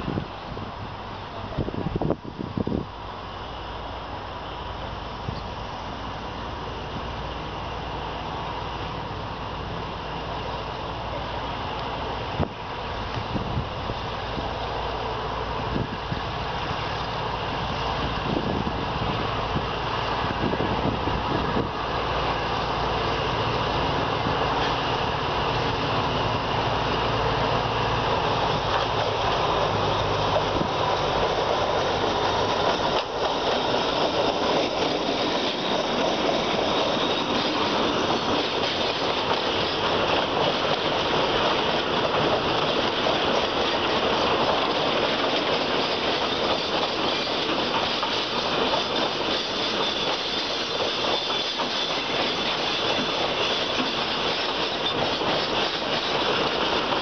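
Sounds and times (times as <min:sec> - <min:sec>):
diesel locomotive engine drone: 0:00.0 - 0:57.0
train wheels rumbling on rails: 0:00.0 - 0:57.0.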